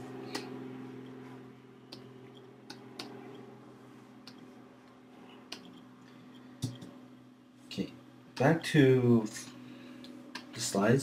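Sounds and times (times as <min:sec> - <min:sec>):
low electrical hum: 0:00.0 - 0:11.0
computer mouse clicks: 0:01.9 - 0:03.4, 0:05.5 - 0:05.8.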